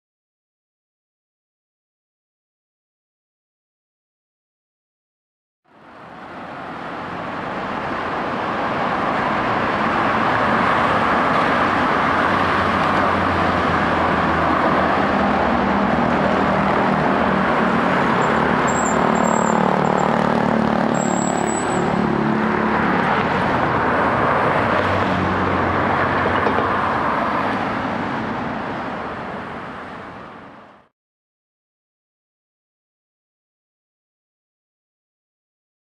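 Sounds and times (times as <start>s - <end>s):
road traffic passing: 5.7s - 30.9s
high squeal: 18.2s - 20.3s, 20.9s - 22.1s.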